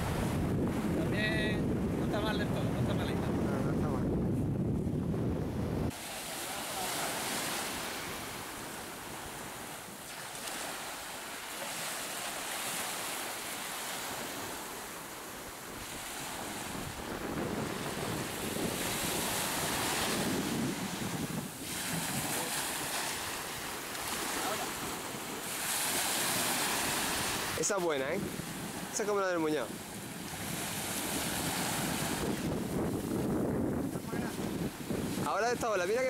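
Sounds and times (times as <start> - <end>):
waves breaking on a beach: 0.0 - 4.2, 5.6 - 36.0
wind rumble on microphone: 0.0 - 6.0, 15.3 - 25.3, 26.3 - 36.0.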